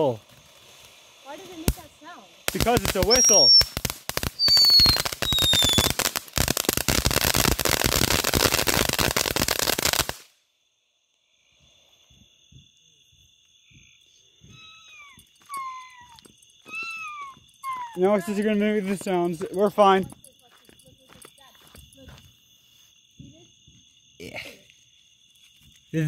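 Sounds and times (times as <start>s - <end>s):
firework fountain crackling: 0.0s - 10.4s, 16.7s - 20.2s
firework falling whistle: 2.6s - 8.0s.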